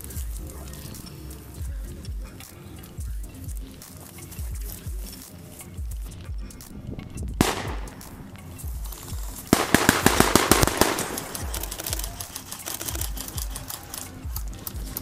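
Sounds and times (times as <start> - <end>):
background music with beat: 0.0 - 15.0
airsoft rifle fire: 7.4 - 8.3, 9.5 - 12.3.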